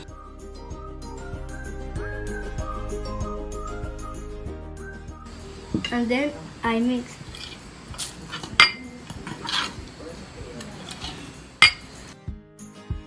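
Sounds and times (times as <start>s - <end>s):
spoon clinking against glass: 8.6s - 9.7s, 11.6s - 11.9s.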